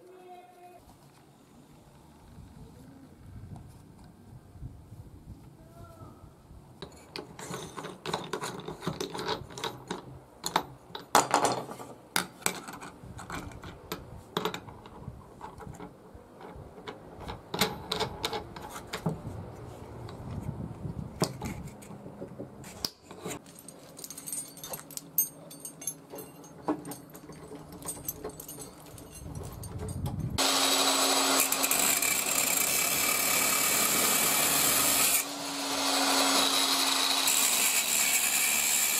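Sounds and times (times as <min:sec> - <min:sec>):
chain clinking: 0:23.4 - 0:30.4.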